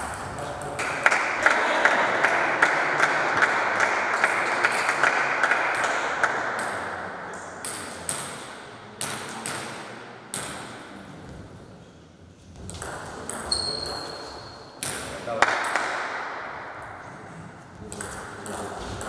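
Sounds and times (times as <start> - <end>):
table tennis ball bouncing: 2.2 - 10.8, 12.6 - 14.0, 14.8 - 17.0, 17.8 - 19.0.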